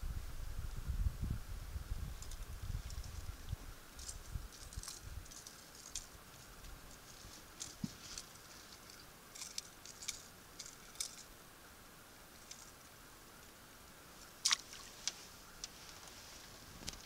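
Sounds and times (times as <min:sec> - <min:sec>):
water splashing and dripping: 0:14.4 - 0:15.0.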